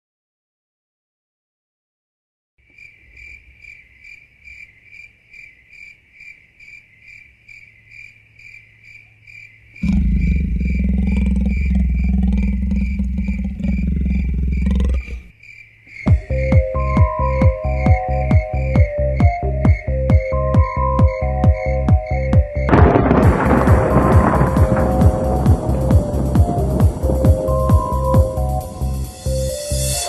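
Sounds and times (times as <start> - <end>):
pulsing cricket-like electronic chirp: 2.7 - 30.0
loud low rumble: 9.8 - 15.3, 22.7 - 29.5
drum beats: 16.1 - 30.0.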